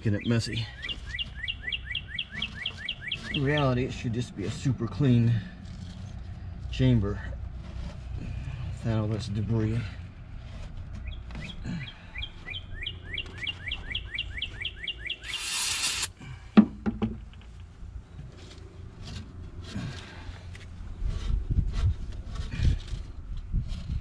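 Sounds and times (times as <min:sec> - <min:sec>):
bird chirping: 0:00.0 - 0:03.9, 0:11.0 - 0:16.1
brief hiss: 0:15.3 - 0:16.1.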